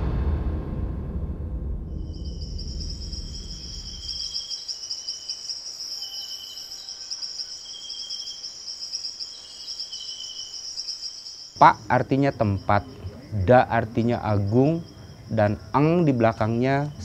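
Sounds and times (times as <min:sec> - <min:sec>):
deep rumble: 0:00.0 - 0:04.4
crickets trilling: 0:02.0 - 0:17.0
lower insect trill: 0:02.0 - 0:17.0.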